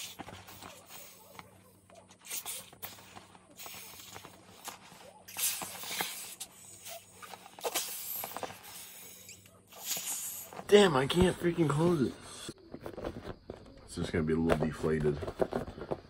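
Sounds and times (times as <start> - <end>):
inflatable ball handled: 0.0 - 11.4.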